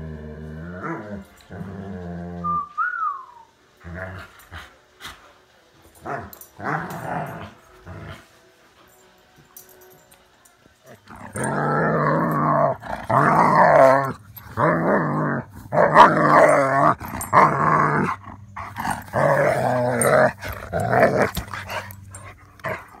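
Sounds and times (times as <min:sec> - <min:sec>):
steady low hum: 0:11.0 - 0:23.0.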